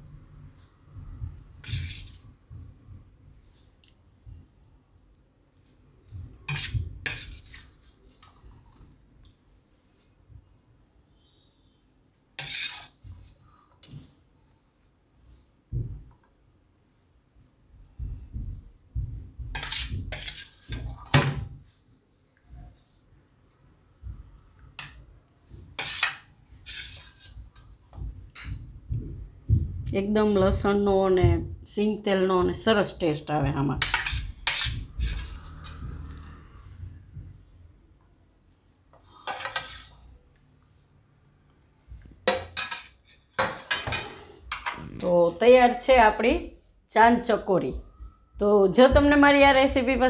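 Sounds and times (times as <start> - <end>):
spoon scraping plates: 1.6 - 2.2, 6.4 - 8.4, 12.4 - 13.6, 19.6 - 21.1, 25.7 - 27.8, 33.8 - 36.3, 39.0 - 40.2, 42.4 - 45.0
soft thuds: 28.0 - 31.6.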